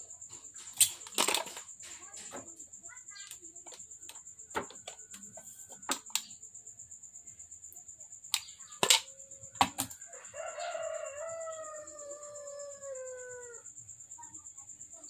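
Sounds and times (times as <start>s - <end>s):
rooster crowing: 9.9s - 13.8s.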